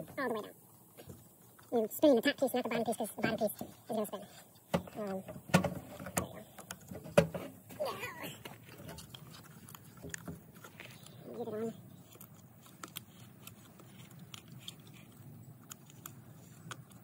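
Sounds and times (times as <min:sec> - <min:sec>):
plastic clicks and scraping: 0:03.5 - 0:07.7, 0:08.4 - 0:11.2, 0:11.9 - 0:17.0.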